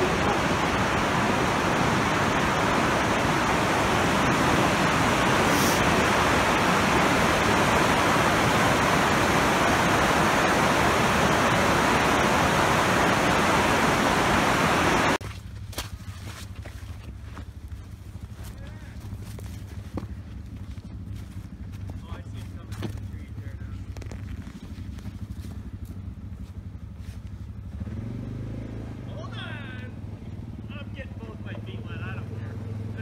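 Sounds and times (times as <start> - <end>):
river rushing through rapids: 0.0 - 15.2
footsteps on dirt trail: 15.2 - 27.6.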